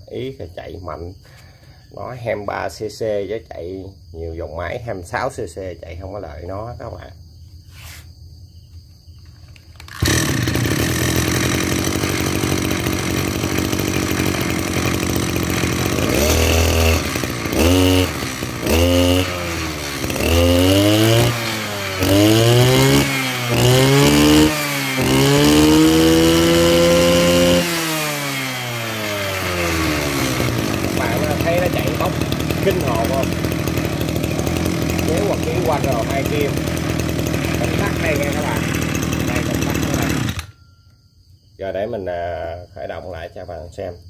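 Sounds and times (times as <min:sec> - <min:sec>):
brush cutter engine revving: 0:09.5 - 0:40.6.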